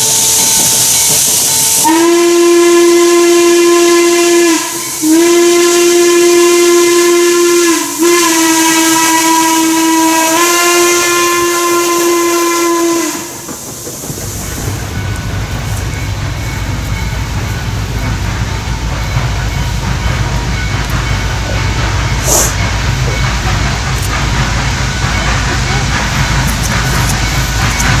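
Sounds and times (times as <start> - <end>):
steam whistle blasts: 0.0 - 13.5
train rumbling past: 0.0 - 28.0.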